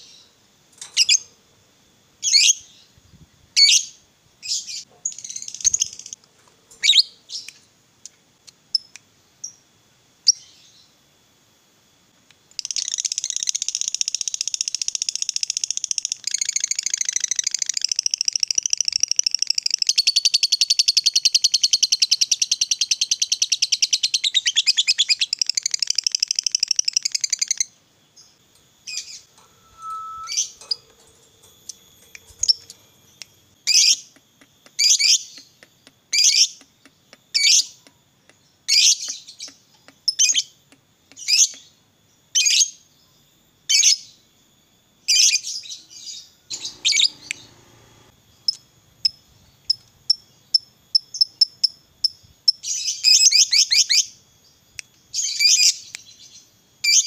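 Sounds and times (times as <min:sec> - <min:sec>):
bird rattling trill: 0:00.8 - 0:01.4, 0:28.5 - 0:35.3, 0:46.5 - 0:48.1
sharp bird chirps: 0:12.6 - 0:37.8, 0:45.1 - 0:57.0.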